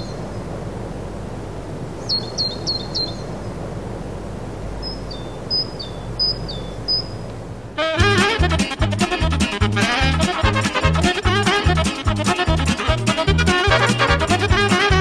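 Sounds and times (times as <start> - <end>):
songbird calling: 0.0 - 0.5, 1.9 - 3.6, 4.7 - 7.4
low outdoor background noise: 0.0 - 8.0
music: 7.8 - 15.0.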